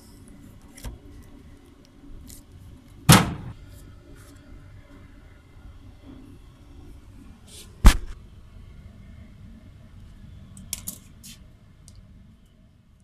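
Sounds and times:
sharp knock: 0:03.1 - 0:03.6, 0:07.8 - 0:08.2.

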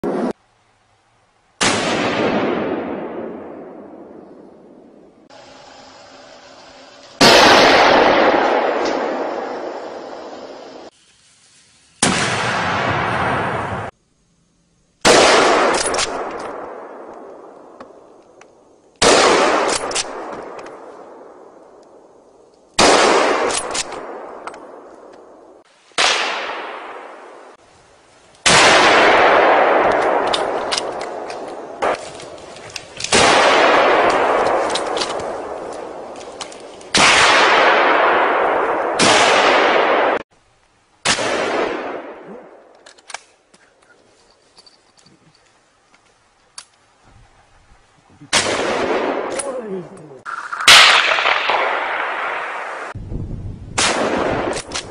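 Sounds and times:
gunshots echoing through forest: 0:01.6 - 0:05.9, 0:07.1 - 0:10.9, 0:12.0 - 0:13.9, 0:15.0 - 0:27.6, 0:28.4 - 0:40.4, 0:41.0 - 0:43.4, 0:48.2 - 0:53.0, 0:53.7 - 0:54.9.

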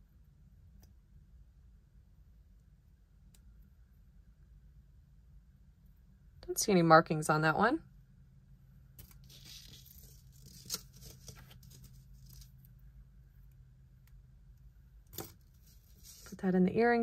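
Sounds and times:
low steady hum: 0:00.0 - 0:17.0
soft rustling: 0:15.5 - 0:16.4.

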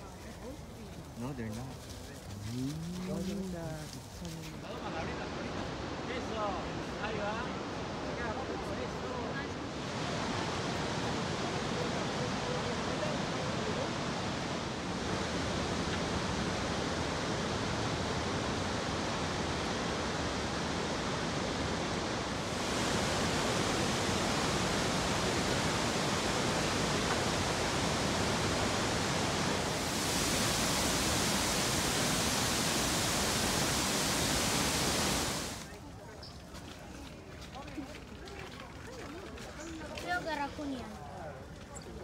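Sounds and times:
waterfall rushing: 0:09.6 - 0:35.7.

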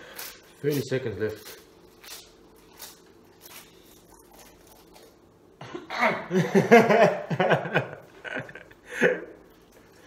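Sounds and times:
man laughing: 0:05.6 - 0:09.4.

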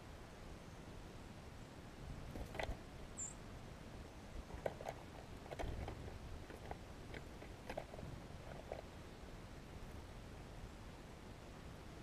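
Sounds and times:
bird pecking on snow and twigs: 0:04.4 - 0:08.9.

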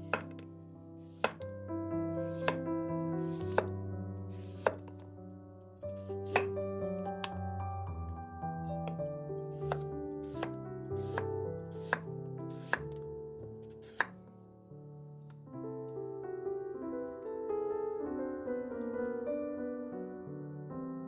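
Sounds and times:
knife chopping on wooden board: 0:00.0 - 0:00.4, 0:01.1 - 0:01.4, 0:02.3 - 0:02.6, 0:03.3 - 0:03.7, 0:04.4 - 0:05.0, 0:06.0 - 0:06.6, 0:09.6 - 0:13.0, 0:13.6 - 0:14.2
soft piano music: 0:00.0 - 0:21.0.

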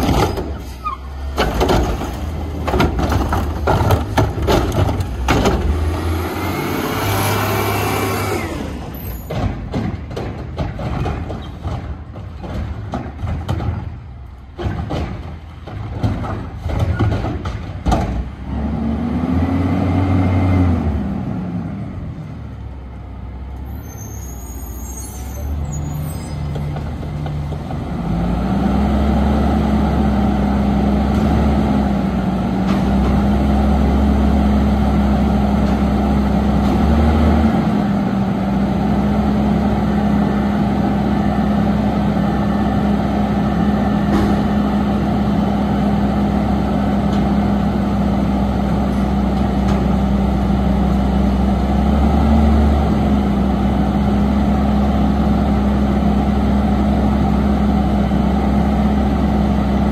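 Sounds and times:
garbage truck engine revving: 0:00.0 - 0:09.5, 0:18.4 - 0:22.1, 0:27.0 - 0:59.9.

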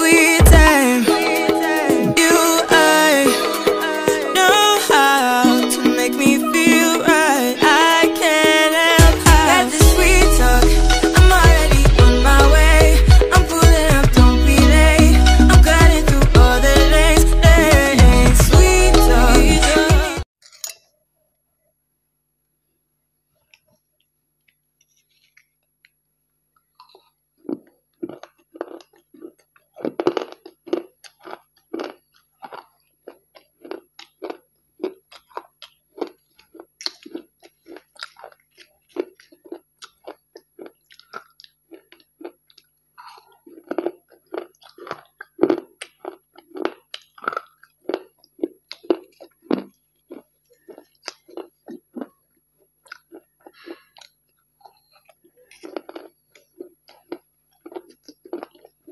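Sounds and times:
crunchy chewing: 0:23.3 - 0:58.9.

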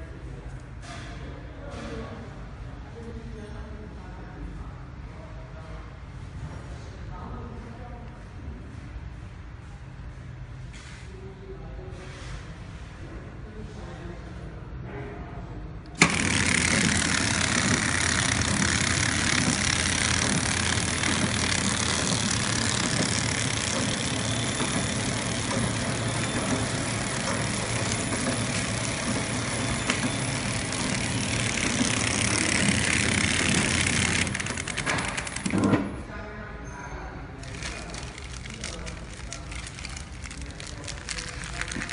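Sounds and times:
wrapping machine running: 0:15.9 - 0:36.0, 0:37.4 - 0:41.9.

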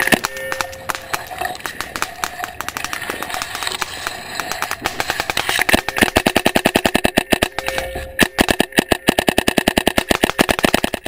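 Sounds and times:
paintball marker rapid firing: 0:00.0 - 0:11.0.

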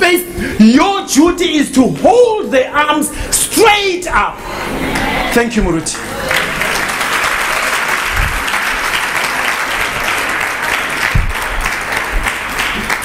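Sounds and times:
congregation applauding: 0:05.9 - 0:13.0
dull low thumps: 0:08.1 - 0:08.6, 0:11.0 - 0:12.3.

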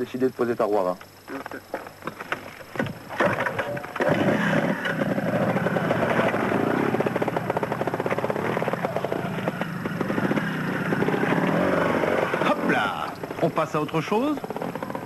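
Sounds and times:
motorcycle engine revving: 0:03.2 - 0:15.0.

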